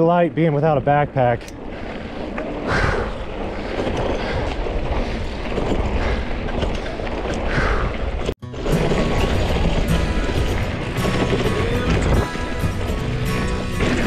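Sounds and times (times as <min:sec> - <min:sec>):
wind rush on microphone: 0:01.6 - 0:08.4.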